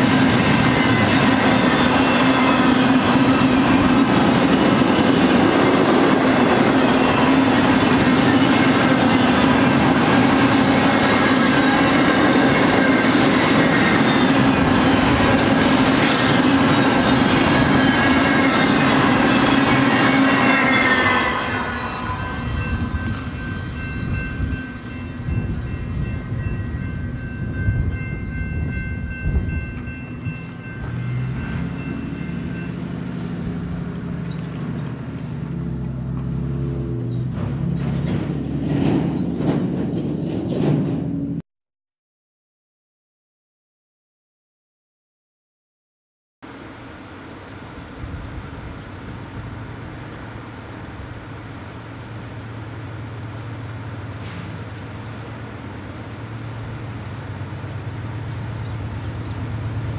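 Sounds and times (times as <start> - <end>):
freight train wheels clattering: 0.0 - 41.4, 53.4 - 59.9.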